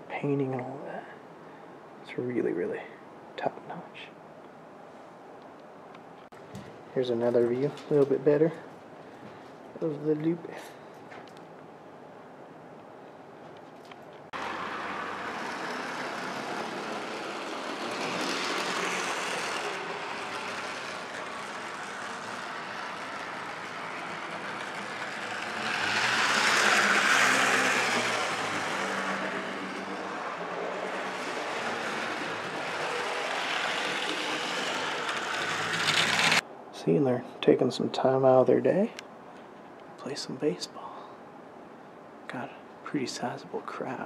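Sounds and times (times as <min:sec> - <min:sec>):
model train rolling rumble: 0:14.4 - 0:36.4.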